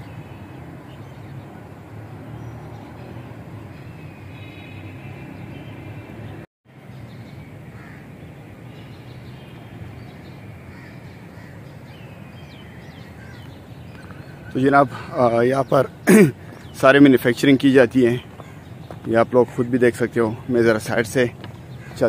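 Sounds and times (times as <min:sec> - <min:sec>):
faint bird calls: 0:07.7 - 0:16.8.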